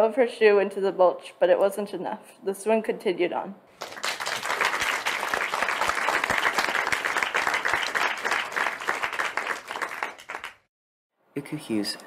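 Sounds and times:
hands clapping: 3.8 - 10.7.

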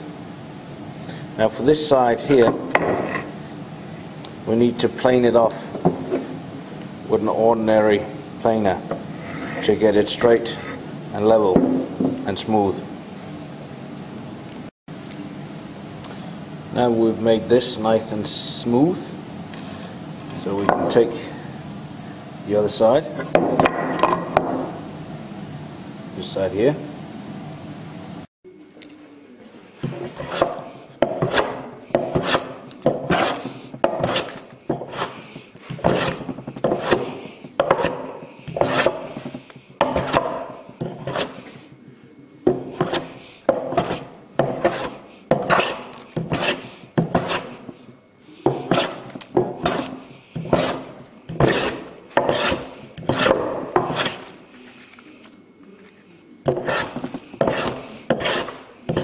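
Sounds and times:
hand plane shaving wood: 32.1 - 35.2, 35.8 - 38.0, 38.6 - 39.2, 42.8 - 47.6, 48.6 - 49.0, 49.6 - 54.3, 56.5 - 59.0.

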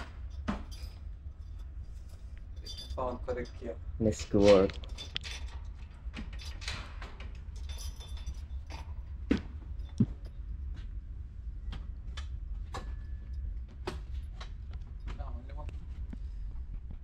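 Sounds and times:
steady low hum: 0.0 - 17.0
key jingling: 0.2 - 3.8, 4.7 - 10.6.

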